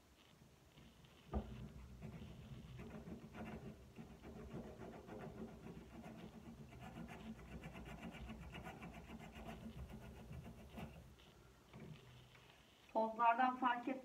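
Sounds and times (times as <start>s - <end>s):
sandpaper scratching on cork: 0.2s - 11.3s.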